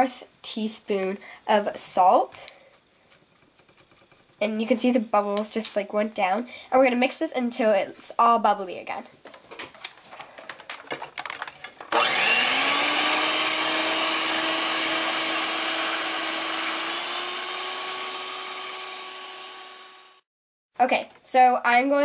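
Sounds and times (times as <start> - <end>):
clicks and knocks: 9.3 - 12.0
electric hand mixer whining: 11.9 - 20.3.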